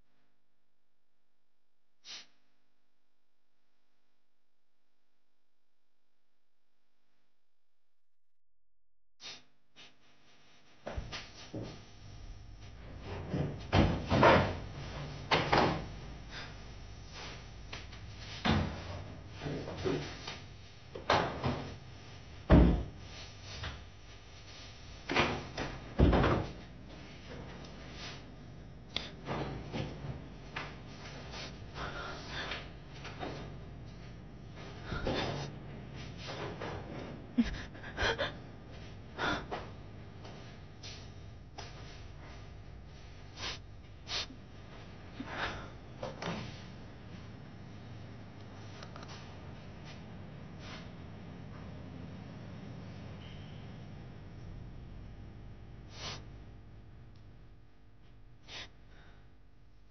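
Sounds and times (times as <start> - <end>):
woman sobbing and sniffling: 37.3 - 38.6.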